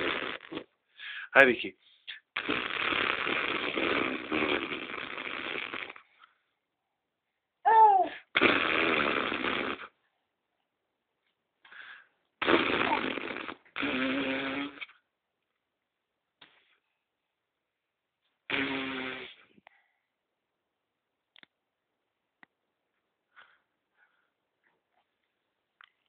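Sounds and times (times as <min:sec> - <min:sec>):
baby's raspy vocal noises: 0:07.6 - 0:08.6, 0:12.5 - 0:14.9.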